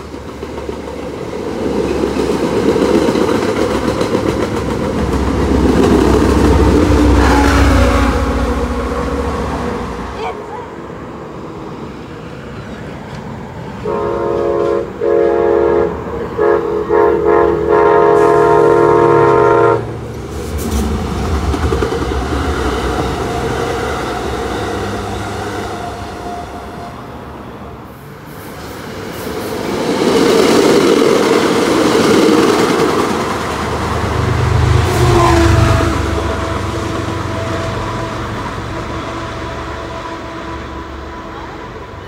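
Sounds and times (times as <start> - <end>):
train coach wheels rushing past: 0.0 - 42.0
train engine and wheel rumble: 0.0 - 42.0
train air horn blasts: 6.4 - 10.1, 13.8 - 20.0, 34.2 - 42.0.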